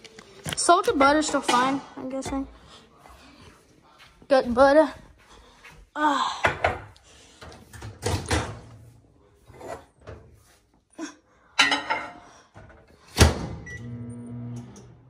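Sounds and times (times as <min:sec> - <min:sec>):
kitchen knocks and clatters: 0:00.6 - 0:02.4, 0:06.4 - 0:08.9, 0:11.6 - 0:13.4.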